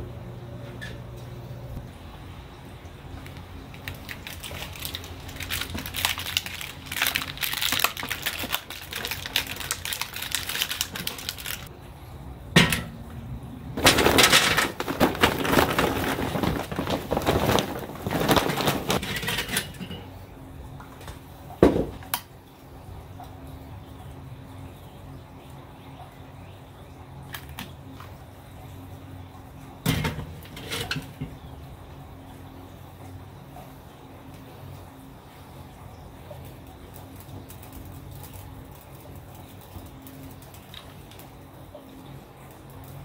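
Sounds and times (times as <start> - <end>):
charcoal briquettes clattering: 3.0 - 11.7, 12.5 - 13.1, 13.8 - 20.3, 29.7 - 31.8, 36.2 - 43.0.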